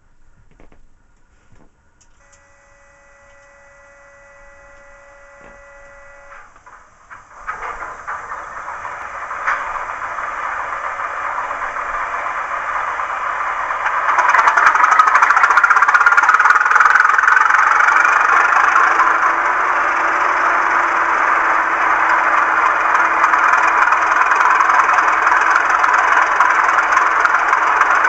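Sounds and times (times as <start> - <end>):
steady whine: 0.0 - 28.0
clicks: 0.4 - 12.1
diesel engine starting and running: 1.0 - 28.0.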